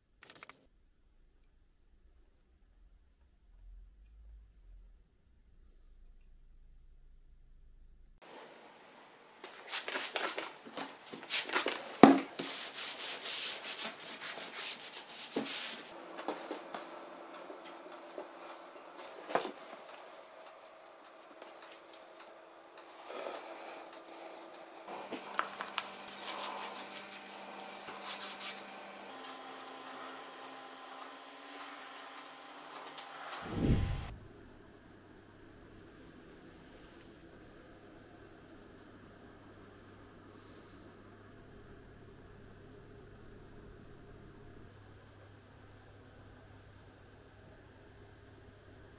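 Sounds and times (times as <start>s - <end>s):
faint steady hum: 0.0s - 48.9s
rubbing and scraping strokes: 11.1s - 22.0s, 22.8s - 28.7s.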